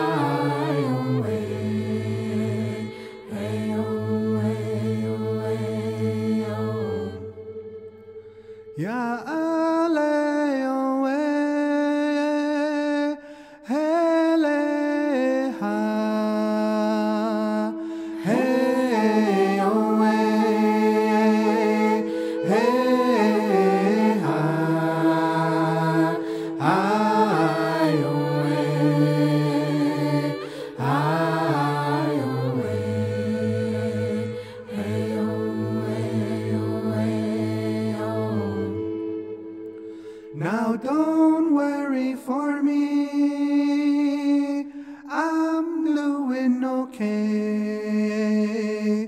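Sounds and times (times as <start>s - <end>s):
harmony vocal note: 0.0s - 9.4s, 16.7s - 42.1s
person singing held wordless notes: 0.0s - 45.3s.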